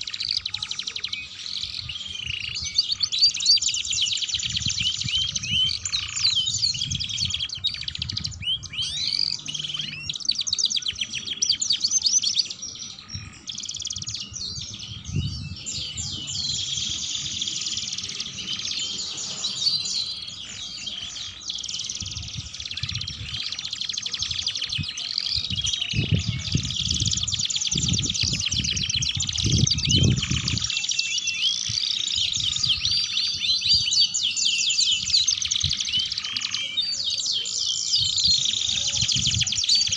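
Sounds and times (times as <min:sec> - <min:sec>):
canaries singing with trills: 0:00.0 - 0:39.9.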